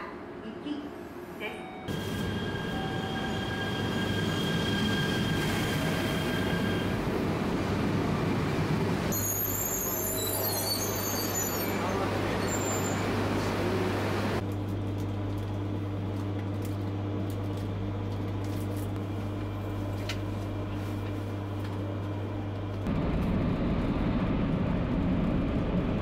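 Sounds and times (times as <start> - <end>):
train interior hum: 0.0 - 10.6, 11.5 - 14.5, 18.9 - 26.0
train low rumble: 0.0 - 26.0.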